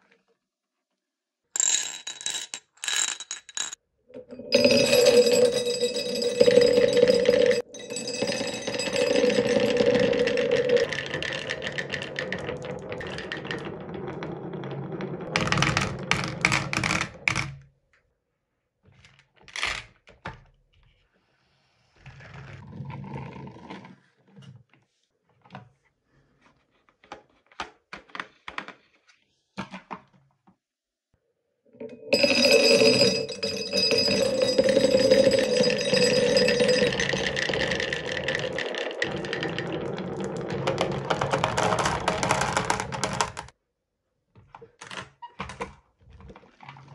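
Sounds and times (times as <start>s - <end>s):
marbles clattering down wooden run: 1.6s - 3.8s, 4.4s - 17.5s, 31.9s - 43.5s
marble clicks and knocks: 1.6s - 17.6s, 31.8s - 43.5s.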